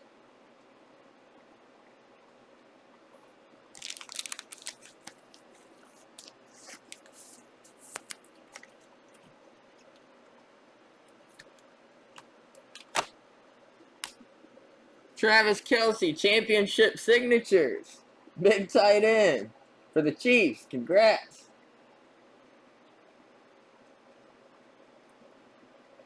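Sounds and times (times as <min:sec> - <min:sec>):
card packs crinkling: 0:03.7 - 0:08.8, 0:12.6 - 0:13.1.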